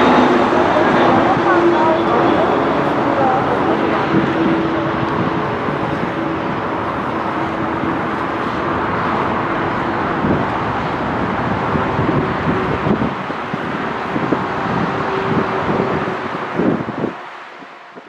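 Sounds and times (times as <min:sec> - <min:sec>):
jet engines rushing: 0:00.0 - 0:18.0.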